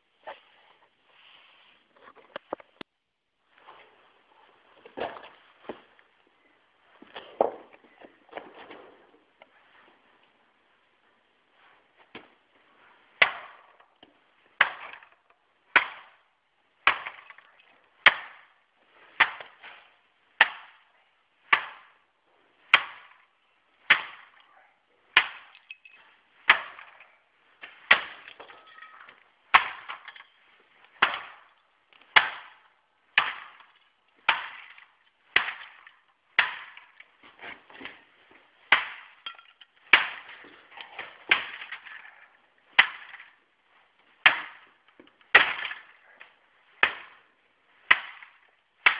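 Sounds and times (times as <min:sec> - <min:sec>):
garden tool smashing toy car: 0:38.7 - 0:43.4, 0:44.2 - 0:47.2.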